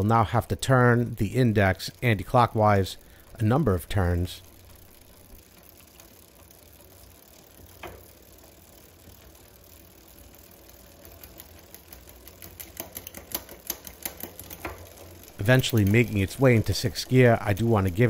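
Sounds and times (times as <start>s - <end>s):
bicycle chain ticking on cassette: 0.0s - 18.0s.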